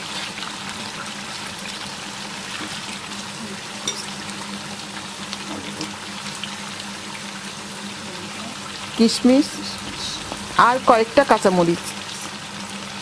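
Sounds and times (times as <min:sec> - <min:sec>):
gravy bubbling and sizzling: 0:00.0 - 0:13.0
steady low hum: 0:06.5 - 0:12.8.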